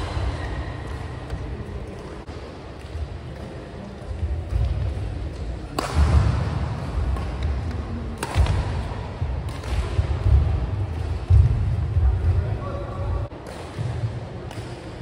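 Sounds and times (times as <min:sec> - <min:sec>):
racket striking shuttlecock: 0:04.5 - 0:11.5, 0:13.4 - 0:15.0.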